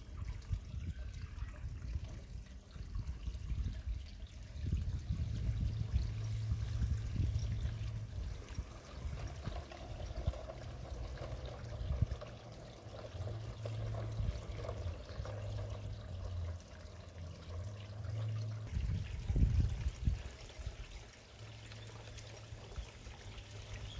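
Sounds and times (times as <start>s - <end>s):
pond water trickling: 0.0s - 23.9s
wheels clicking on rails: 7.8s - 18.6s.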